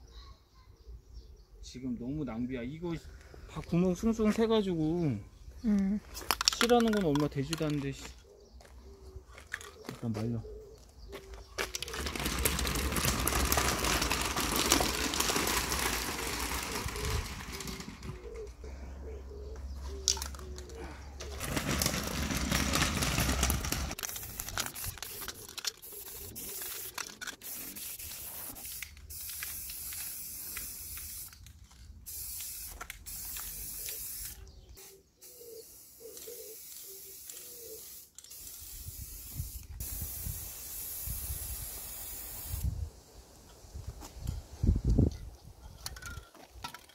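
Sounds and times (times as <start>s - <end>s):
aerosol can spraying: 23.9s - 31.4s, 32.1s - 42.7s.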